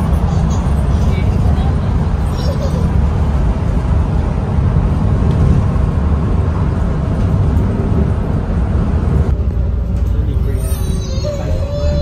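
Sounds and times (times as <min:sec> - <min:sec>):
bus engine and road noise: 0:00.0 - 0:12.0.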